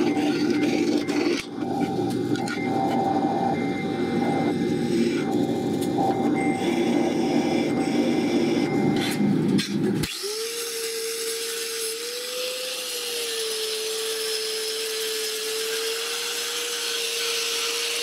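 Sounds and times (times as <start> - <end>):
angle grinder whine: 0.0 - 18.0
drill press boring steel: 9.7 - 18.0.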